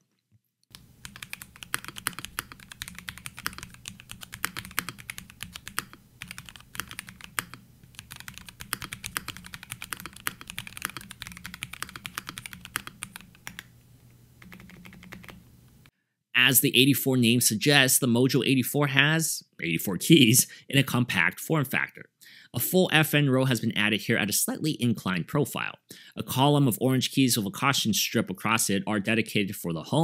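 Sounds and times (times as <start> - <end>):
soft keyboard typing: 0.7 - 13.7, 14.4 - 15.8.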